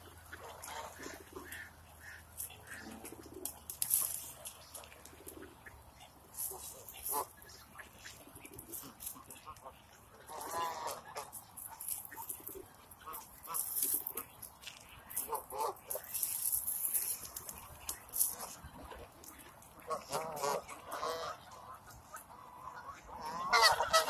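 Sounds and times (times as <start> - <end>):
geese and ducks calling: 0.0 - 24.0.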